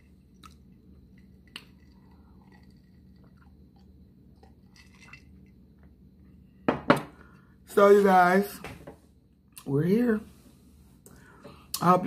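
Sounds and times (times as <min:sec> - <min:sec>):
soft chewing and swallowing: 0:00.3 - 0:04.8.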